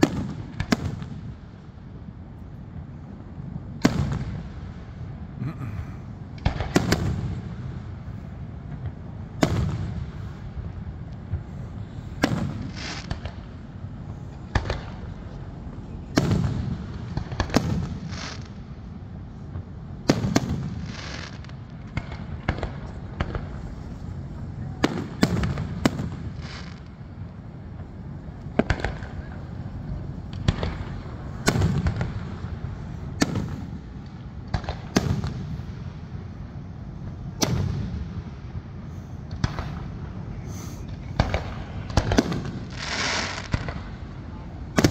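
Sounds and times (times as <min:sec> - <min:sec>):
fireworks bangs: 0:00.0 - 0:01.6, 0:03.8 - 0:05.1, 0:06.3 - 0:44.9
low continuous rumble: 0:00.0 - 0:44.9
firework shells bursting: 0:20.0 - 0:35.6.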